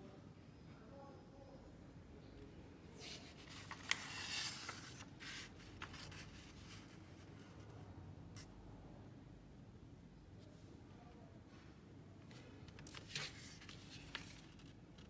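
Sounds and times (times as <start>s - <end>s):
paper rustling and crinkling: 3.0s - 7.6s, 12.3s - 15.0s.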